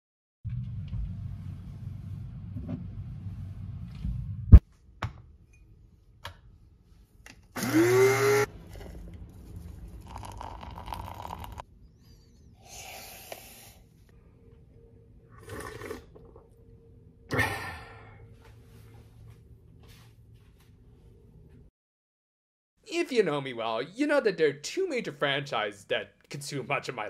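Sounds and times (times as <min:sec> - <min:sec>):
coffee grinder motor whirring: 0:07.6 - 0:08.5.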